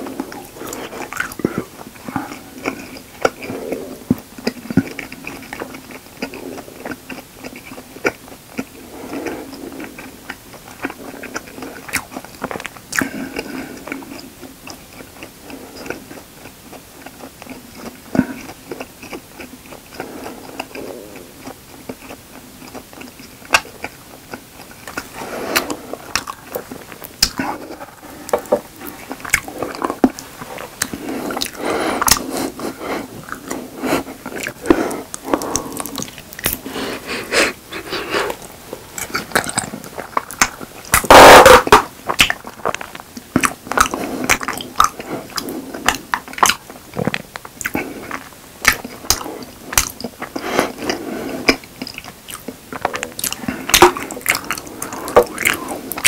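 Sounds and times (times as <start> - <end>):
wet chewing mouth sounds: 0.0 - 56.0.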